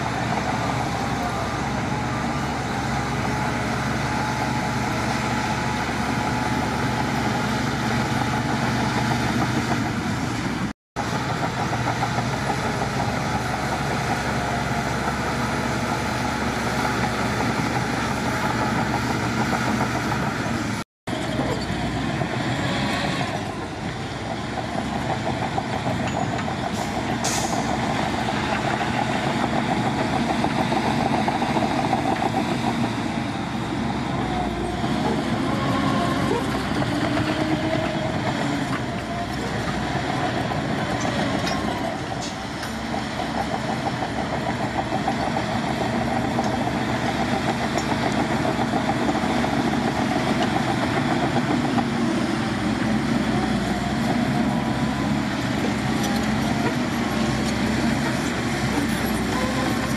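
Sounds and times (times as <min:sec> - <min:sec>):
bulldozer diesel engine running: 0:00.0 - 0:59.9
heavy diesel engine: 0:00.0 - 0:59.9.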